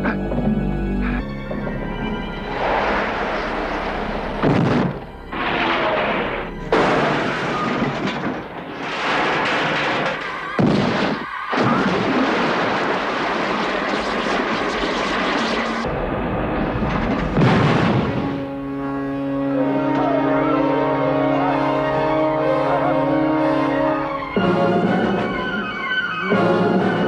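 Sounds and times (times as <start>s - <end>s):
action film music: 0.0s - 8.6s, 12.8s - 27.0s
heavy crashes and impacts: 2.5s - 18.5s.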